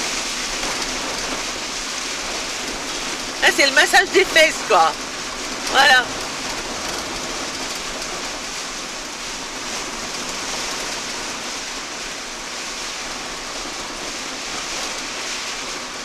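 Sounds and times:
rain on a windscreen: 0.0 - 16.0
tyres on wet road: 0.0 - 16.0.

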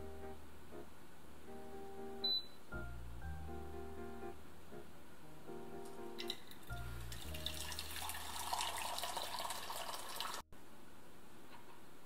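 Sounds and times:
water pouring into kettle: 6.2 - 10.4.

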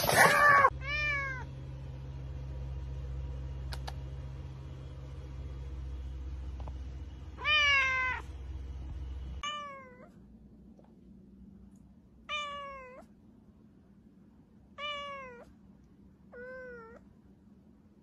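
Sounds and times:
low hum: 0.0 - 12.3
cat meowing: 0.1 - 1.5, 7.4 - 8.2, 9.4 - 10.1, 12.3 - 13.1, 14.8 - 15.5, 16.3 - 17.0.

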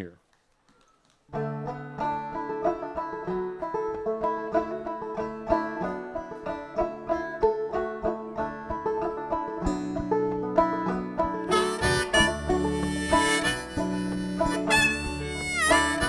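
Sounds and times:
banjo-led string band music: 1.3 - 16.0.

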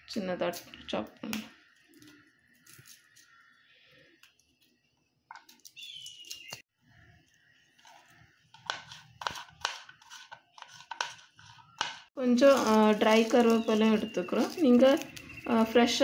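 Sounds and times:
knife chopping on cutting board: 8.6 - 12.1.

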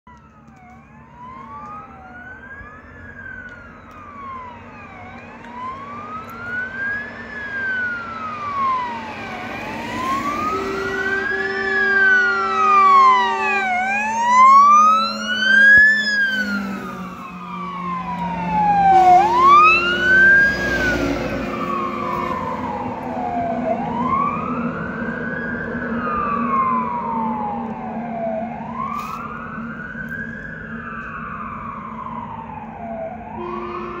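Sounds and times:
fire engine sirens wailing: 0.0 - 34.0
air horn blasts: 10.2 - 13.9, 33.4 - 34.0.

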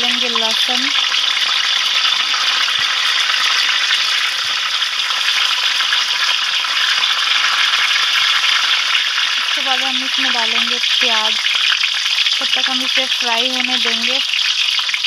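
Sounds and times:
hot oil sizzling: 0.0 - 15.0.

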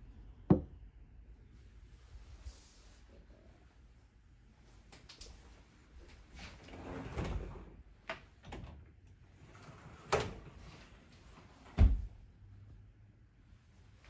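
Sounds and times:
sliding door rolling on track: 6.6 - 7.7, 9.4 - 10.6
door thumping against frame: 11.8 - 12.2.

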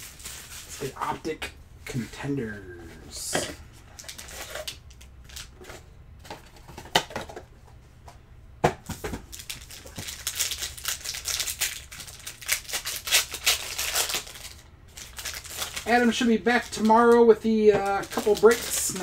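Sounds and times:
foil pack crinkling and tearing: 9.3 - 19.0.

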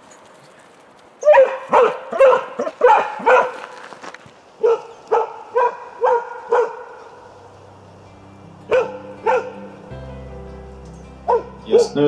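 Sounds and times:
dog barking sharply: 1.2 - 3.6, 4.6 - 7.0, 8.7 - 9.6, 11.3 - 12.0.

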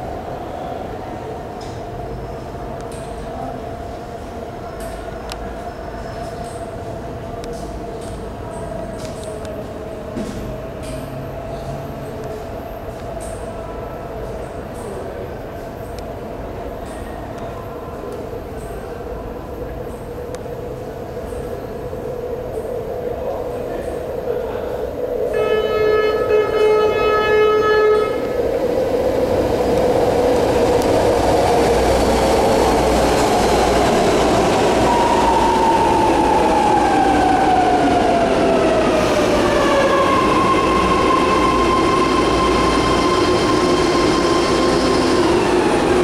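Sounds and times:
train rumble: 0.0 - 46.0
train braking whine: 25.2 - 46.0
train horn: 25.3 - 28.4.

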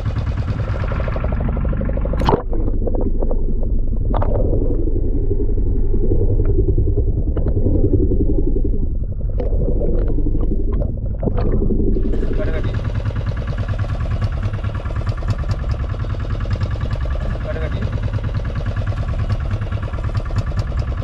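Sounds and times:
underwater low rumble: 0.0 - 21.0
small underwater clicks and pops: 2.0 - 5.0, 6.3 - 12.6.

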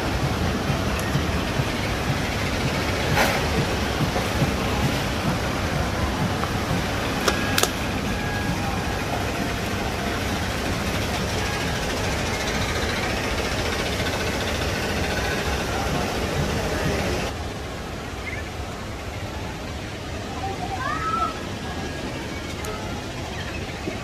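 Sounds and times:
steady rushing noise: 0.0 - 24.0
sharp clicks: 7.2 - 7.8.

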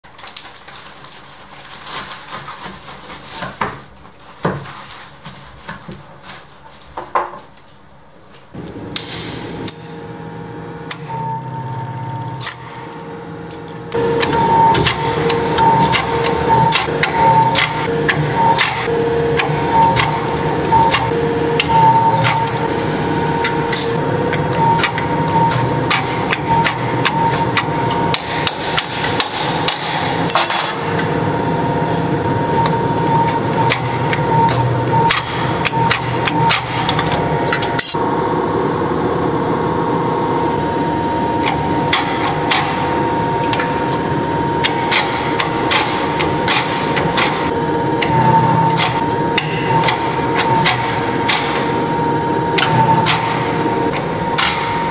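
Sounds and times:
high machine hum: 8.5 - 54.9
power hammer striking steel: 8.6 - 10.1, 10.9 - 31.2, 44.5 - 54.9.

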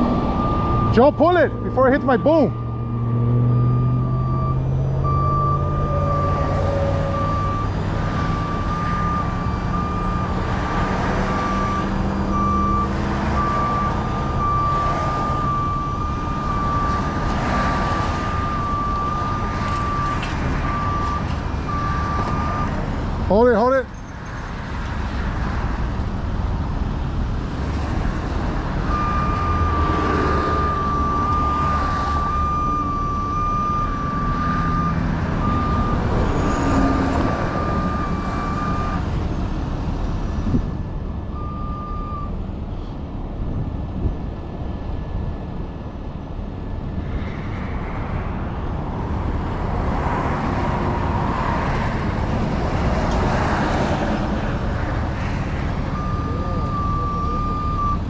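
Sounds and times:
steady high tone: 0.0 - 7.6
diesel truck engine running: 0.0 - 47.0.

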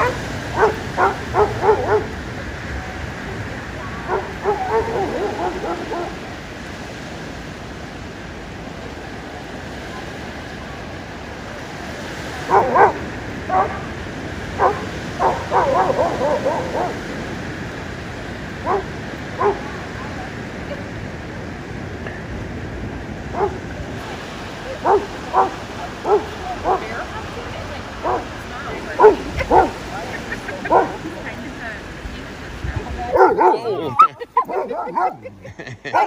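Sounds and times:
dog barking and yipping: 0.0 - 2.2, 4.0 - 6.3, 12.5 - 13.9, 14.6 - 17.0, 18.7 - 19.7, 24.8 - 26.9, 29.0 - 29.8, 30.6 - 31.0, 33.1 - 35.3
small surf washing on beach: 0.0 - 36.0.

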